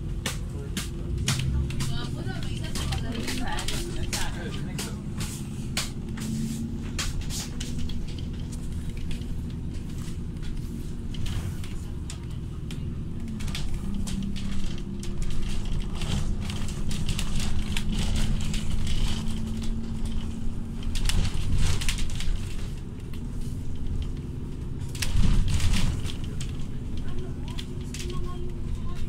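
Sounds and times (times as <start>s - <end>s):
engine and road rumble: 0.0s - 29.0s
light rattles and clicks: 0.2s - 29.0s.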